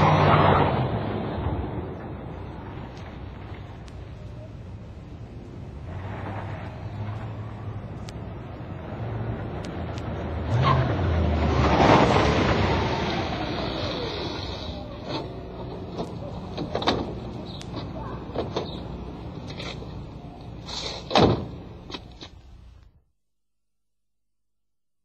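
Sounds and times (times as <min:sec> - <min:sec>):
tires squealing: 0:00.0 - 0:03.8, 0:05.8 - 0:17.7
car driving past: 0:05.6 - 0:15.9.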